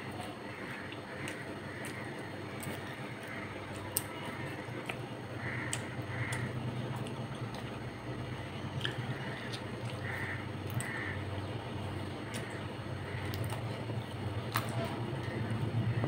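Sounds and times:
low background hum: 0:00.0 - 0:16.0
soft squishy noises: 0:00.0 - 0:16.0
chewing: 0:00.2 - 0:05.1, 0:08.7 - 0:11.0.

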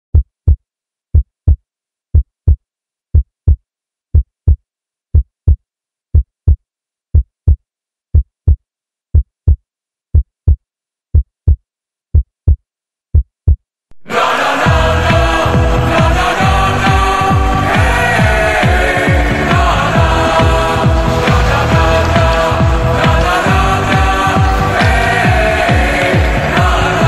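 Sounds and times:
heartbeat thumps: 0:00.1 - 0:13.6, 0:14.7 - 0:27.0
loud music: 0:14.0 - 0:27.0.

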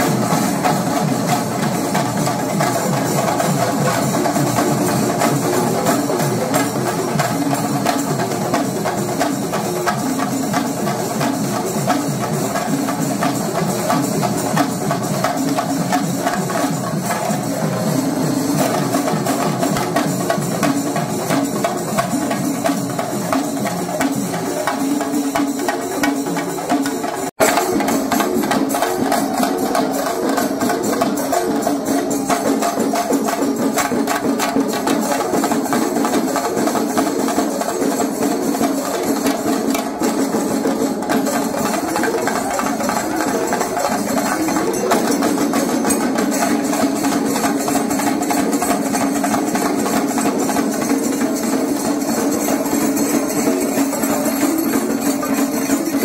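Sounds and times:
rapid drumming: 0:00.0 - 0:56.0.

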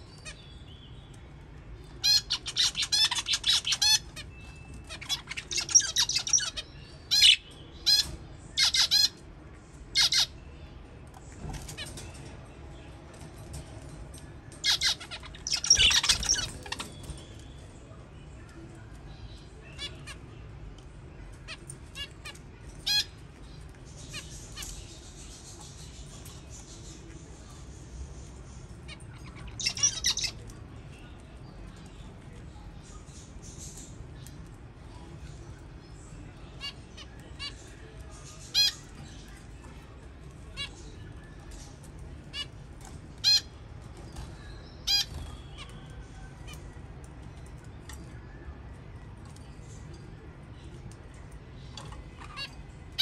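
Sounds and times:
budgerigars chirping and squawking: 0:01.9 - 0:09.2, 0:09.9 - 0:10.4, 0:11.4 - 0:12.3, 0:14.6 - 0:17.4, 0:21.5 - 0:30.5, 0:36.5 - 0:39.7, 0:40.5 - 0:45.8, 0:51.6 - 0:53.0
budgerigars squawking: 0:10.0 - 0:10.3, 0:14.6 - 0:16.8, 0:29.4 - 0:30.4.

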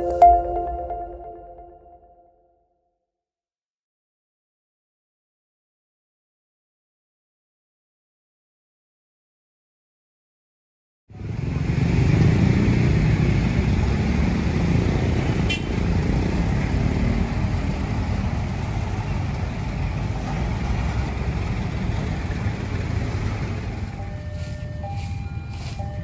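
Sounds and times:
road traffic passing: 0:11.1 - 0:26.0.

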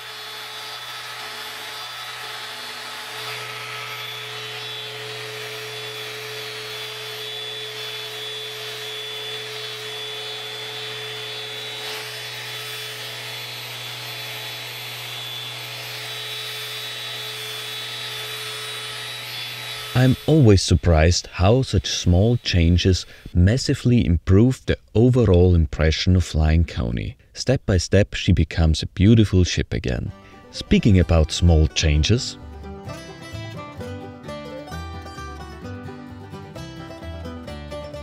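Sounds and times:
orbital sander hum and whine: 0:00.0 - 0:23.4
sandpaper hissing on wood: 0:19.8 - 0:23.4.

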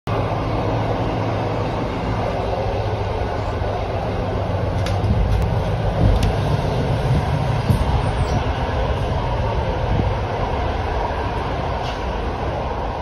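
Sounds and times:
train carriage rattling: 0:00.1 - 0:13.0
train wheels rumbling on rails: 0:00.1 - 0:13.0.

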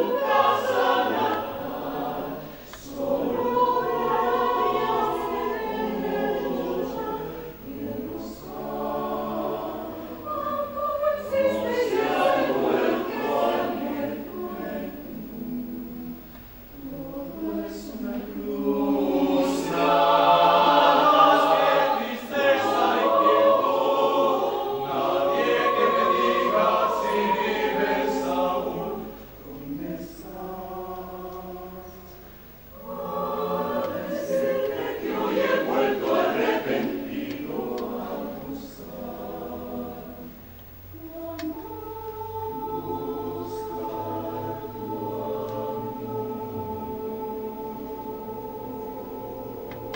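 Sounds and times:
mixed choir singing: 0:00.0 - 0:49.9.

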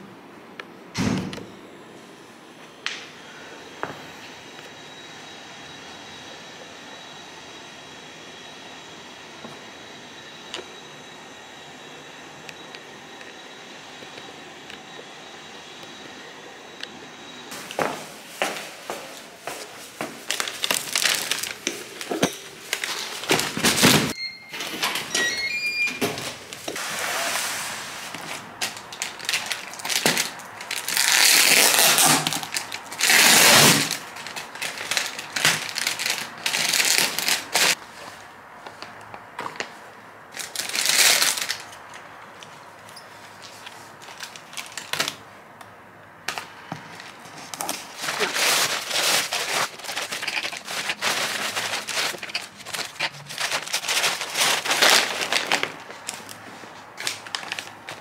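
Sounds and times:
packaging crinkling and rustling: 0:17.6 - 0:24.2, 0:28.0 - 0:41.8, 0:43.3 - 0:45.2, 0:46.3 - 0:58.0.

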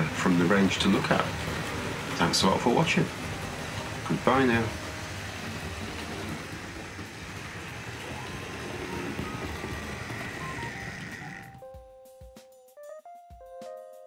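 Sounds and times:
metal wheels rumbling on rails: 0:00.0 - 0:11.6
music: 0:00.0 - 0:14.0
electric motor hum: 0:03.0 - 0:11.6.

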